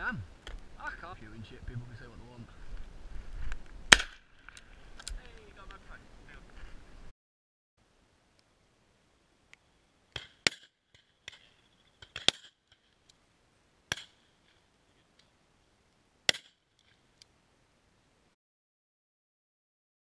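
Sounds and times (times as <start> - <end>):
shotgun shots: 3.9 - 4.3
distant shotgun shots: 3.9 - 4.4.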